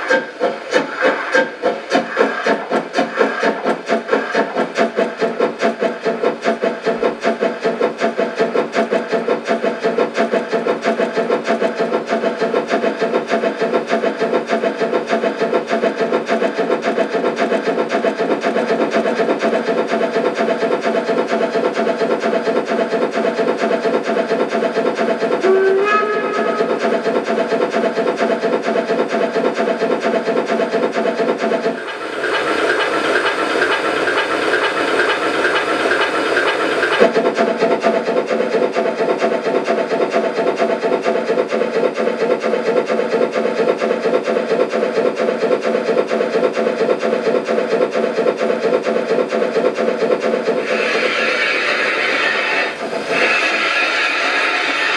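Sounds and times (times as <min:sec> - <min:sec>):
steam hiss: 0:00.0 - 0:08.2, 0:50.5 - 0:54.9
steam locomotive chuffing: 0:00.0 - 0:54.9
locomotive whistle: 0:25.4 - 0:26.8.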